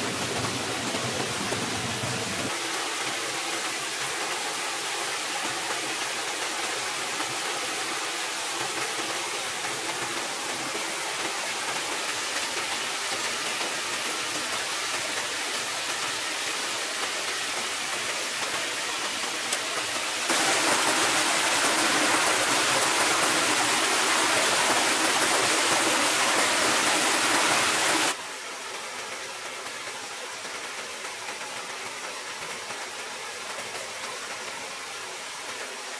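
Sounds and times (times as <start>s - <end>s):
water rushing over rocks: 0.0s - 28.2s.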